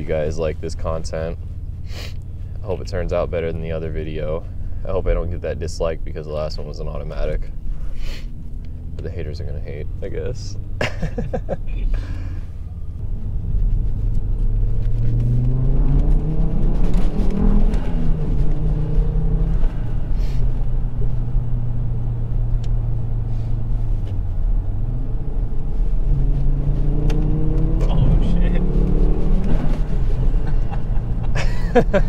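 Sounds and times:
car engine revving from inside cabin: 12.6 - 31.4.

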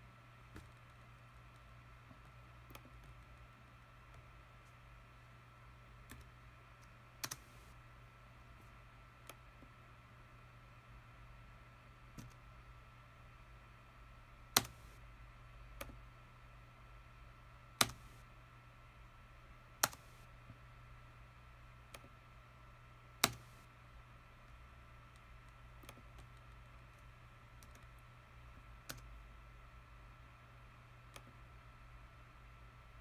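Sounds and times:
steady low hum: 0.0 - 33.0
mouse and key clicks: 14.6 - 15.0, 17.8 - 18.2, 19.8 - 20.2, 23.2 - 23.6.

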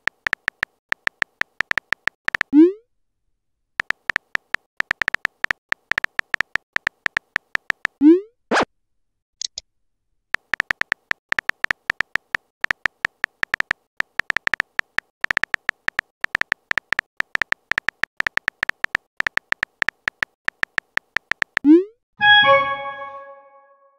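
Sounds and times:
phone keyboard typing clicks: 0.0 - 2.5, 3.8 - 8.0, 10.4 - 21.7.

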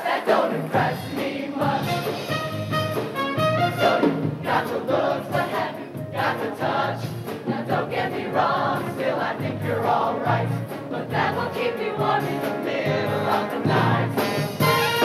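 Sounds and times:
choir singing in parts: 0.0 - 2.5, 3.6 - 14.6
accompaniment with steady beat: 0.3 - 15.0.

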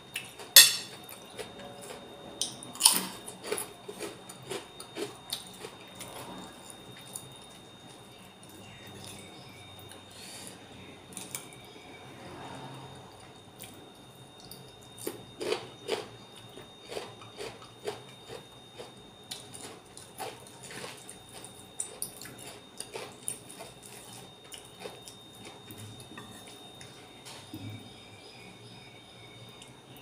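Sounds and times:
faint high whine: 0.0 - 30.0
crunching cucumber: 14.5 - 25.9.

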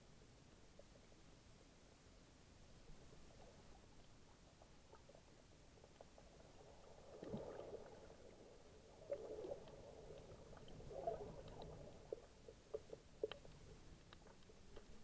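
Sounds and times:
muffled underwater gurgling swishes: 6.4 - 13.9.

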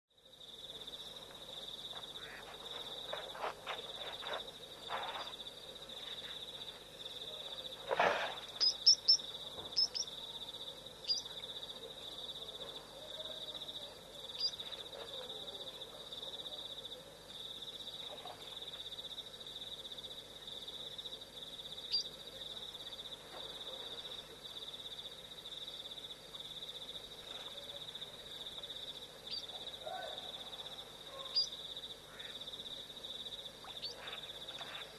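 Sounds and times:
night insects trilling: 0.2 - 34.9
sharp chirps and knocks: 8.1 - 10.1.

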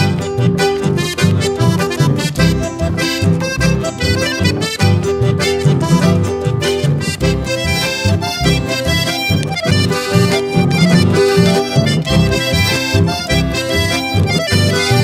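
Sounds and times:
accordion melody: 0.0 - 15.0
rhythmic accompaniment: 0.0 - 15.0.

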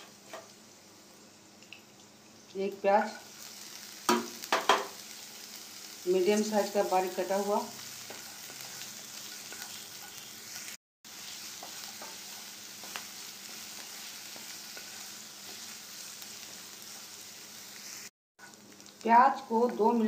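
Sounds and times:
vegetables sizzling in hot oil: 0.0 - 20.0.

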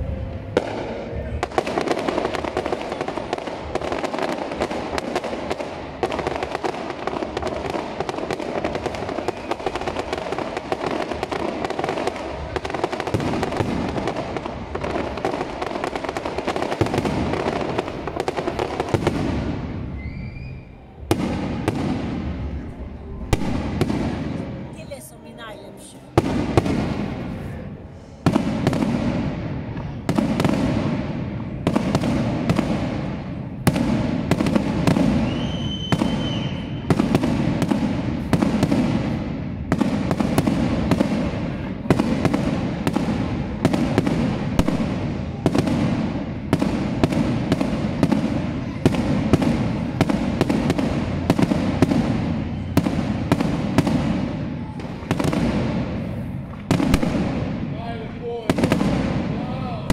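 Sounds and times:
firework crackling: 0.0 - 59.9.

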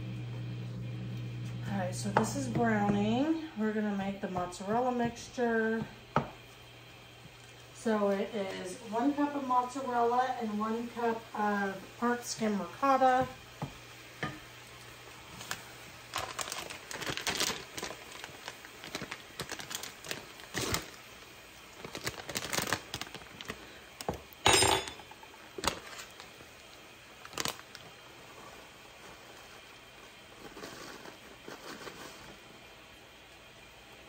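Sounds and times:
plastic bag crinkling: 15.4 - 24.1, 25.6 - 27.9.

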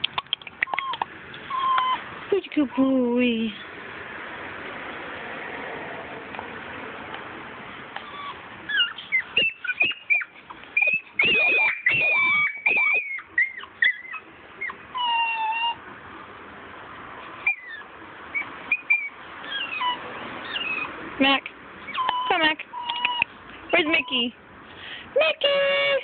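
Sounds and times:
dogs whining and yelping: 0.0 - 2.2, 8.0 - 15.9, 17.4 - 21.0, 21.8 - 24.3.

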